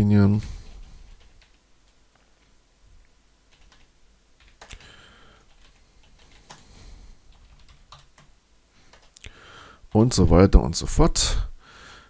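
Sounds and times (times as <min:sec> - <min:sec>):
typing on computer keyboard: 0:00.6 - 0:01.6, 0:03.5 - 0:06.7, 0:07.3 - 0:09.2.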